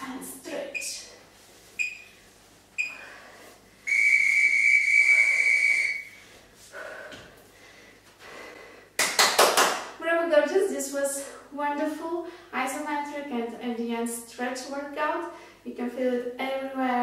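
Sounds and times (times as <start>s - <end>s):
long steady timer beep: 1.8s - 2.1s, 2.8s - 3.0s
short timer beeps: 1.8s - 2.1s.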